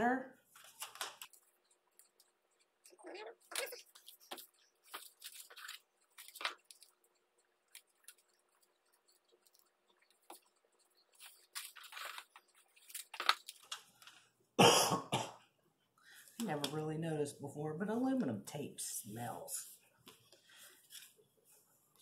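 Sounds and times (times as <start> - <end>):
foil tape crinkling: 0.5 - 1.4, 3.5 - 7.0, 11.1 - 14.2.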